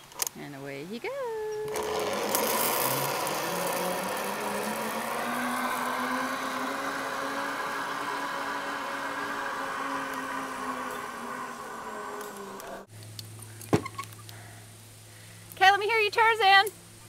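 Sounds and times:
zip-line trolley whirring: 0:01.6 - 0:12.9.

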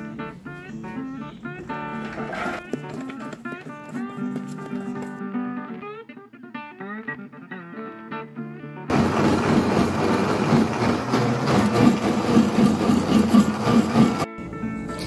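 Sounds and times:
plucked guitar music: 0:00.0 - 0:08.9
blender grinding corn: 0:08.9 - 0:14.3.

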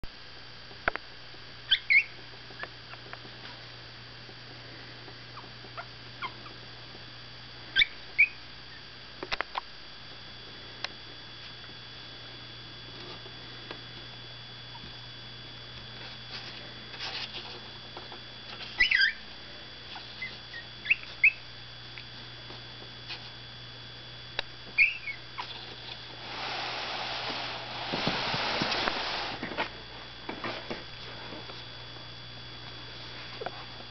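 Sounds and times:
steady low hum: 0:00.0 - 0:33.9
puppies squeaking: 0:01.7 - 0:02.2, 0:05.4 - 0:06.6, 0:07.8 - 0:08.8, 0:18.6 - 0:19.2, 0:19.9 - 0:21.4, 0:24.8 - 0:25.7.

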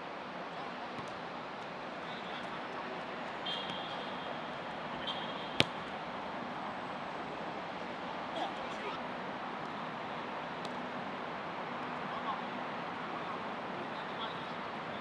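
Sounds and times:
outdoor background noise: 0:00.0 - 0:15.0
football being kicked: 0:05.6 - 0:05.9.

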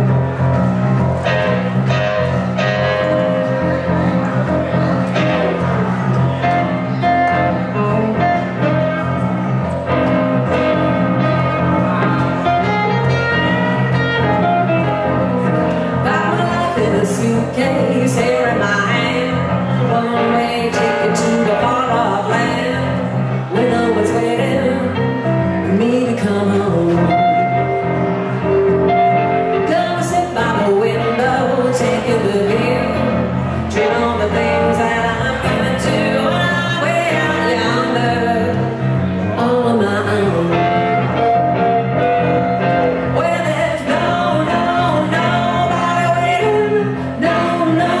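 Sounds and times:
electric guitar: 0:00.0 - 0:48.0
electric keyboard: 0:00.0 - 0:48.0
person singing: 0:15.6 - 0:28.0, 0:43.0 - 0:48.0.

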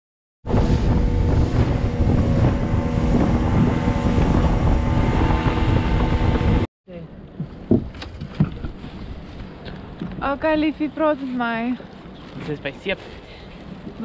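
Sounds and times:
wind on microphone: 0:00.4 - 0:06.7
outboard motor drone: 0:00.5 - 0:06.7
water rushing past: 0:00.5 - 0:06.7.

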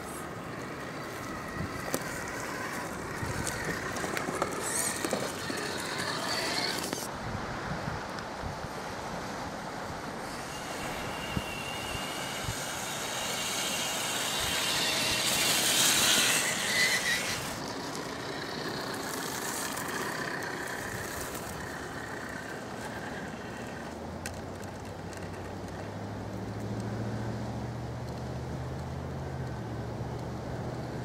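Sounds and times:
toy car motor whining: 0:00.0 - 0:07.1, 0:10.2 - 0:25.9
wheels over dry leaves and dirt: 0:00.0 - 0:07.5, 0:08.1 - 0:31.0.

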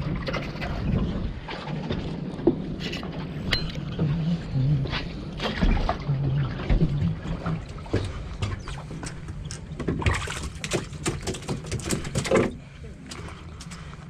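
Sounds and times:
boat engine humming: 0:00.0 - 0:14.0
sharp knocks and clatter: 0:07.8 - 0:12.6
water splashing in plastic tub: 0:09.8 - 0:12.6.

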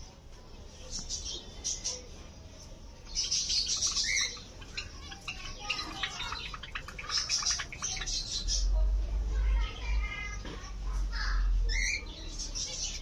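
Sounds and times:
finches chirping: 0:03.1 - 0:08.8.

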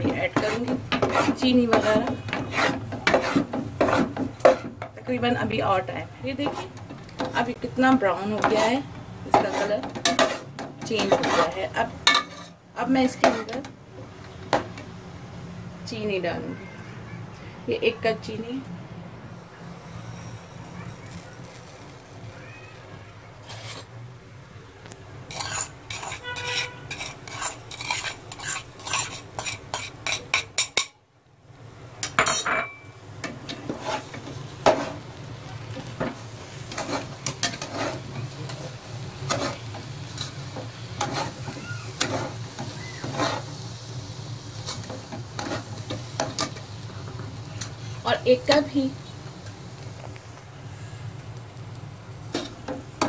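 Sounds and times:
metal spatula scraping a pot: 0:00.0 - 0:04.8, 0:06.3 - 0:07.6, 0:08.2 - 0:13.6, 0:23.4 - 0:23.9, 0:25.3 - 0:30.8, 0:33.5 - 0:35.0, 0:36.0 - 0:43.6, 0:44.6 - 0:46.6
ghee sizzling: 0:00.0 - 0:32.2, 0:32.8 - 0:53.0.

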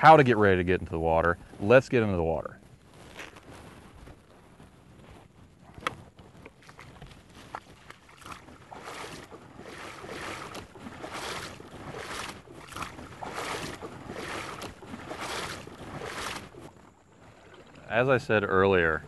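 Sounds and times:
legs wading through water: 0:05.6 - 0:18.3.

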